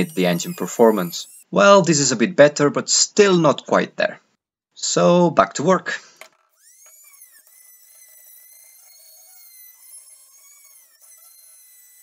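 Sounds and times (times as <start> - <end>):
rotary tool grinding metal: 0.0 - 1.5, 6.2 - 12.0.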